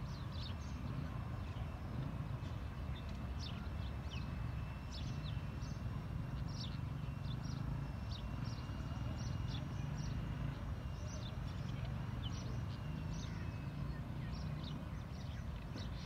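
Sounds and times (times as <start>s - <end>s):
birds chirping: 0.0s - 16.0s
faint high whine: 0.0s - 16.0s.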